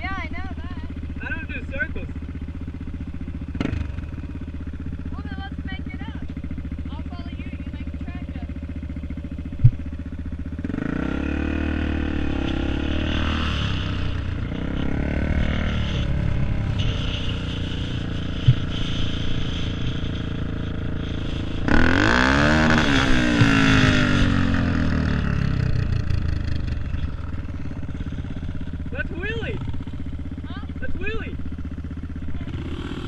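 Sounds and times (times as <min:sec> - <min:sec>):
dirt bike engine revving: 0:00.0 - 0:33.0.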